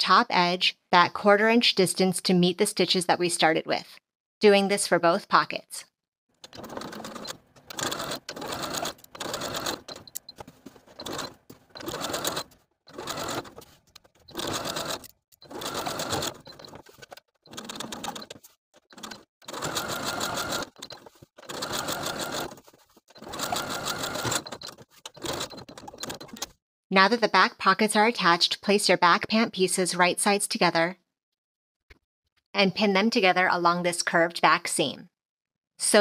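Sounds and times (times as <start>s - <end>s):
sewing machine stitching: 6.4s - 26.6s.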